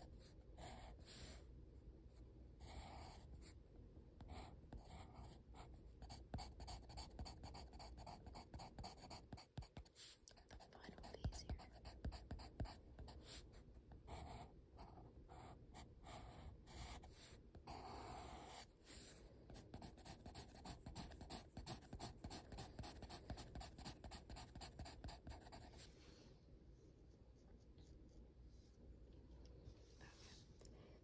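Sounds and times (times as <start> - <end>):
pencil scratching on paper: 0.0 - 1.4, 2.6 - 3.6, 4.2 - 25.9.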